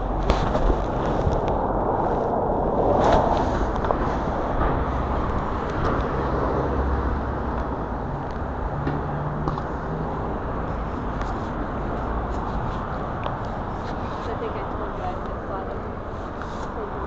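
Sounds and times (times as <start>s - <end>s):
city street traffic: 0.0s - 17.0s.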